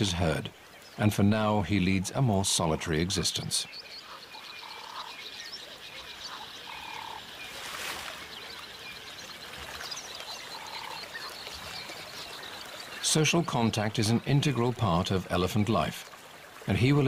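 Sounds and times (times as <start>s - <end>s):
frog trilling: 6.3s - 7.3s.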